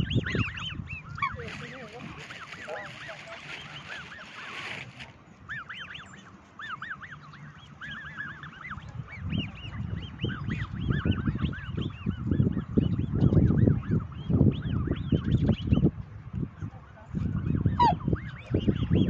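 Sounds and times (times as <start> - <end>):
swans whistling calls: 0.0 - 12.2, 17.4 - 18.9.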